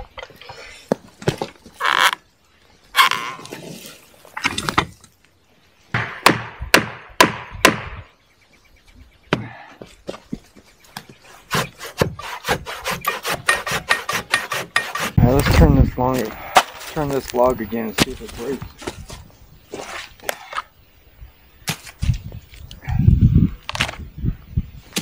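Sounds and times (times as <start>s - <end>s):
sharp knocks on wood: 6.0s - 8.0s
hand saw cutting log: 11.3s - 15.2s.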